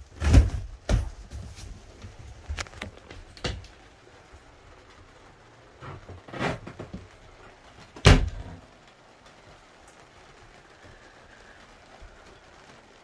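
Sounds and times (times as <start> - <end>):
knocks and clunks: 7.9 - 8.6.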